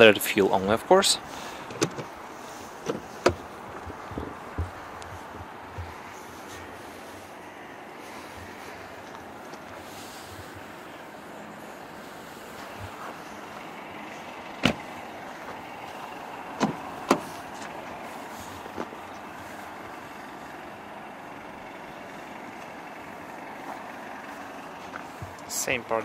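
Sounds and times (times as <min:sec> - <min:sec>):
car engine idling: 0:00.0 - 0:26.0
sharp clicks and knocks: 0:01.6 - 0:02.1, 0:02.8 - 0:06.1, 0:14.6 - 0:14.9, 0:16.6 - 0:17.8.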